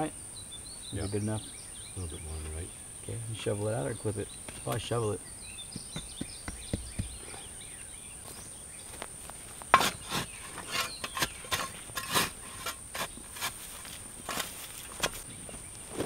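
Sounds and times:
high insect drone: 0.0 - 14.8
spade chopping into soil: 5.7 - 7.2, 9.7 - 13.6.

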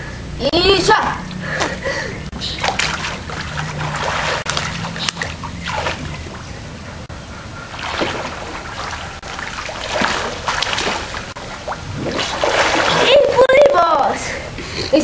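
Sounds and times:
pool water splashing: 2.4 - 14.2.

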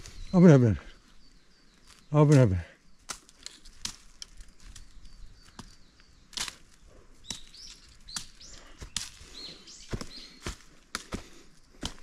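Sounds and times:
footsteps on brushy path: 0.0 - 12.0
high bird chirps: 4.3 - 10.6.

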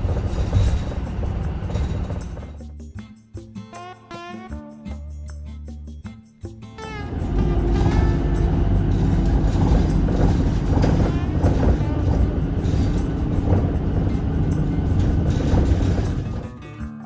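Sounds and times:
low rumble of moving vehicle: 0.0 - 2.6, 6.8 - 16.7.

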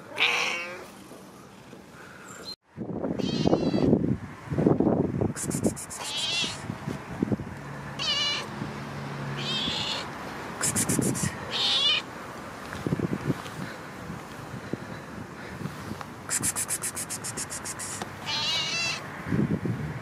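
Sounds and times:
cat meowing: 0.2 - 0.8, 3.2 - 3.9, 6.0 - 6.6, 8.0 - 8.5, 9.4 - 10.1, 11.0 - 12.1, 18.2 - 19.0.

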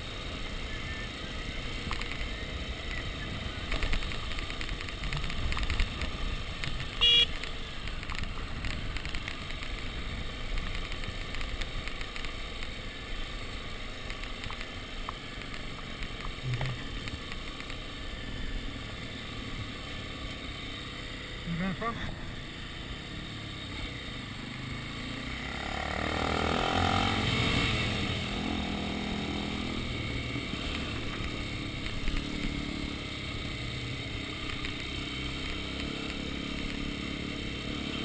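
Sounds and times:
dirt bike engine: 0.0 - 38.0
road noise: 0.0 - 38.0
horn beep: 7.0 - 7.3.

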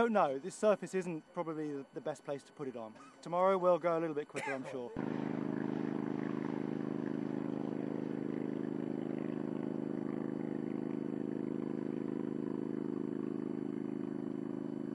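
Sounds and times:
lawnmower engine running: 5.0 - 14.9.

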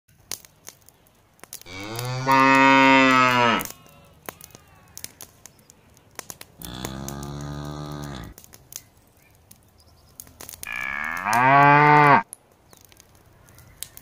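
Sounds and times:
cow mooing: 1.7 - 3.7, 6.6 - 8.4, 10.7 - 12.2.

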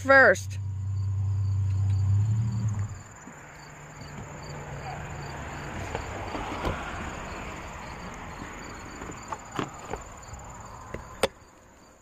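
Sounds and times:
insects chirping: 0.0 - 12.0
short knocks and clunks: 5.6 - 7.1.

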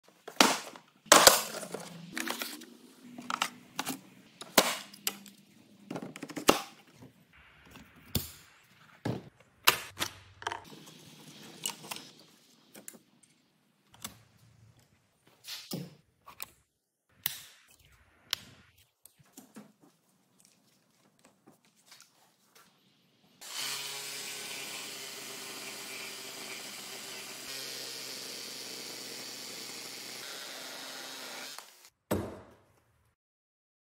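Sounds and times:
reciprocating saw cutting wood: 23.4 - 31.9.

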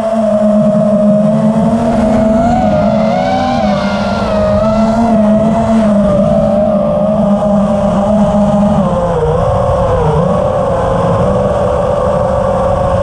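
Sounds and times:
model aircraft motor whine: 0.0 - 13.0.

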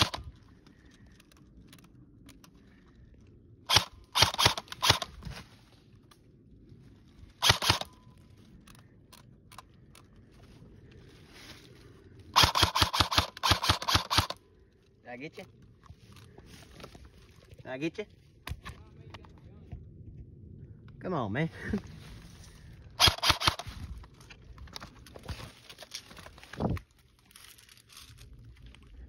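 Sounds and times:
airsoft gun shots: 7.4 - 7.9, 12.4 - 14.4, 23.0 - 23.7.

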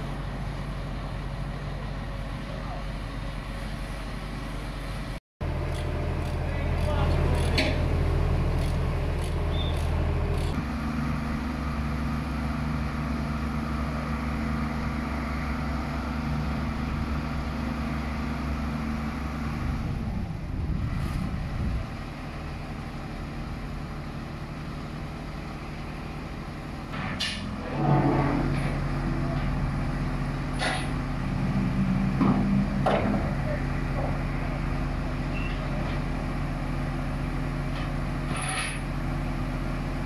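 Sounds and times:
diesel engine idling: 0.0 - 27.0.

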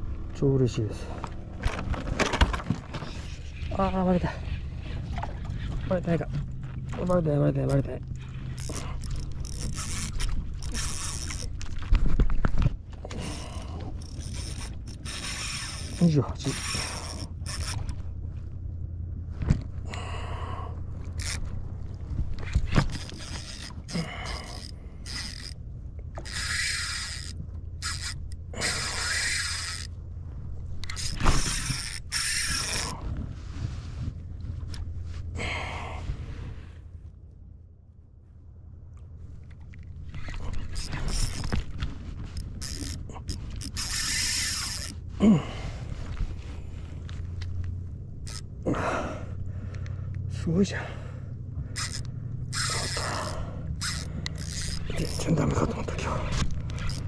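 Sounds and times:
low rumble of water: 0.0 - 57.0
fishing tackle clicking and rubbing: 8.1 - 18.0, 21.1 - 21.5, 22.4 - 29.9, 30.8 - 33.0, 39.5 - 45.0, 48.2 - 48.5, 51.7 - 57.0.

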